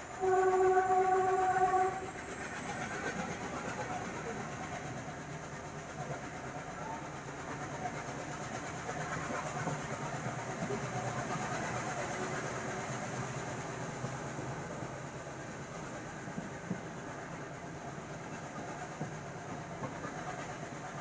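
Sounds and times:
train coaches rolling on track: 0.0s - 21.0s.

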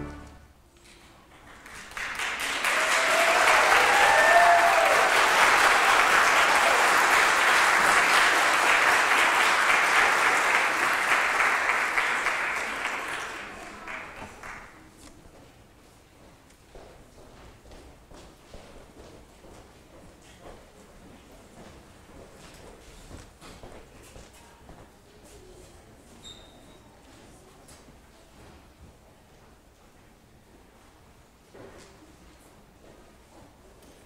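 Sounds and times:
congregation applauding: 1.4s - 14.8s.

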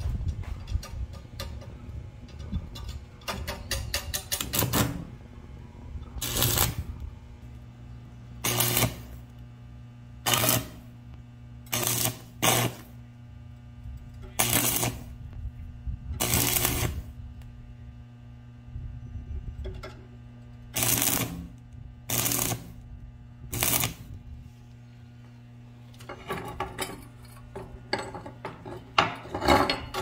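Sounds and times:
steady low hum: 0.0s - 30.0s
welding arc crackling: 2.6s - 5.3s, 6.1s - 15.5s, 16.2s - 18.6s, 20.1s - 24.3s.

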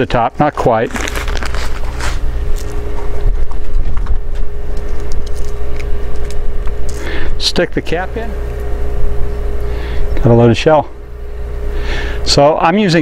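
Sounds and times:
steady low hum: 0.0s - 13.0s.

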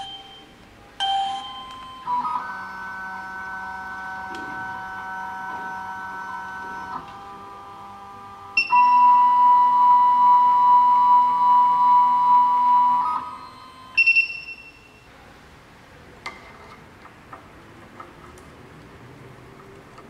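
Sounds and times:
stepper motors whining: 2.2s - 13.7s
short machine beep: 8.6s - 15.0s.

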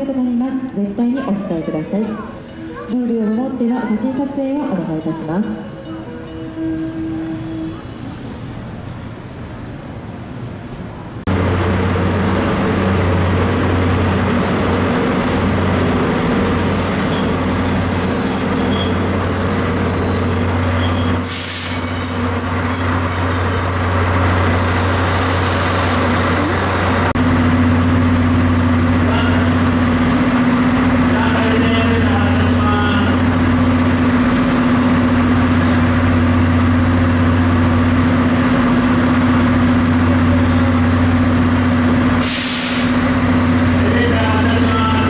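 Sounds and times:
diesel locomotive engines droning: 0.0s - 45.0s
distant train and station sound: 0.0s - 45.0s
thin high squeal: 16.0s - 24.4s
air hiss: 42.2s - 43.1s.

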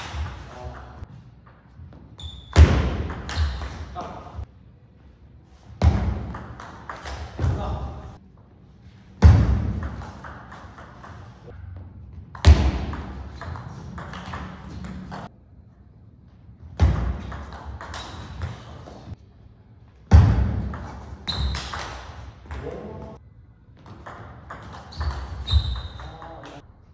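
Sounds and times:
ping pong ball clicking off rackets: 9.8s - 11.4s, 12.9s - 15.3s.

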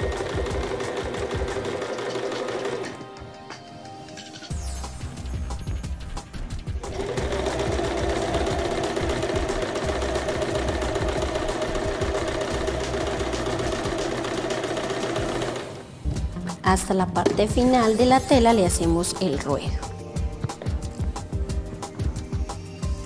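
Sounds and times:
sewing machine stitching fabric: 0.0s - 3.0s, 6.9s - 15.8s
background music: 0.0s - 23.0s.

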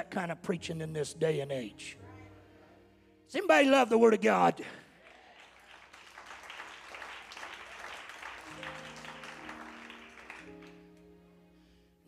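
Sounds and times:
soft sustained instrumental chord: 0.0s - 4.0s, 8.5s - 12.0s
congregation applauding: 4.8s - 11.0s.

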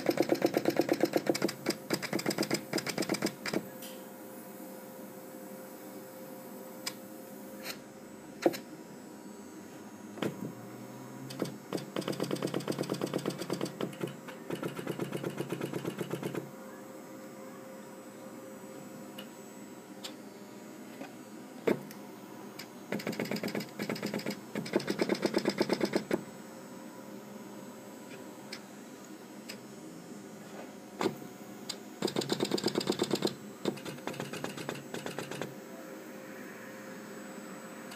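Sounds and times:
rapid pneumatic clattering: 0.0s - 3.6s.

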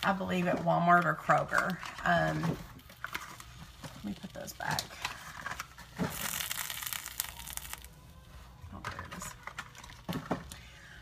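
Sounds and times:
crinkling rustling handling noise: 0.0s - 10.8s.

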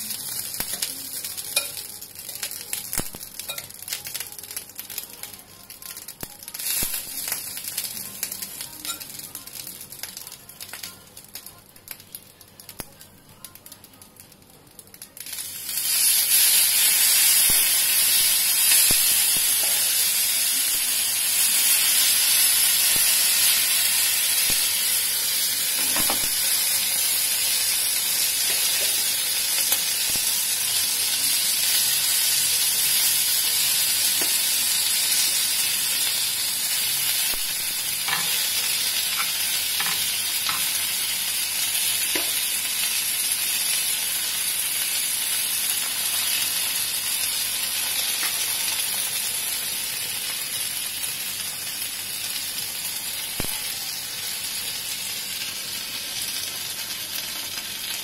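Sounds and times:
food sizzling on hot plate: 0.0s - 58.0s.

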